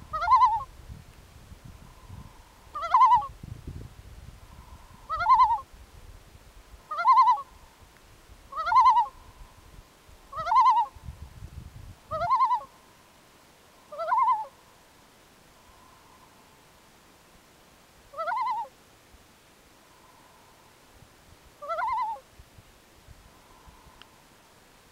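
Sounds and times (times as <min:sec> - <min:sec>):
loon calling: 0:00.0 - 0:00.7, 0:02.7 - 0:03.3, 0:04.6 - 0:05.7, 0:06.9 - 0:07.6, 0:08.5 - 0:09.3, 0:10.3 - 0:11.0, 0:12.1 - 0:12.7, 0:13.9 - 0:14.5, 0:18.1 - 0:18.7, 0:21.6 - 0:22.2.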